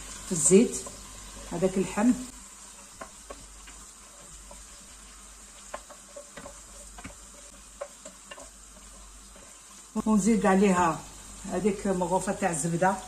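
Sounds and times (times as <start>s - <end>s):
meat sizzling in hot oil: 0.0s - 13.0s
wooden spoon knocking: 5.6s - 9.0s.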